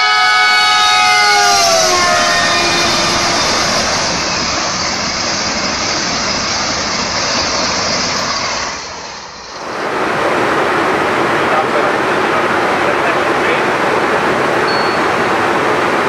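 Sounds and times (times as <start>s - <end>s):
train horn: 0.0s - 4.4s
train passing at speed: 0.0s - 16.0s.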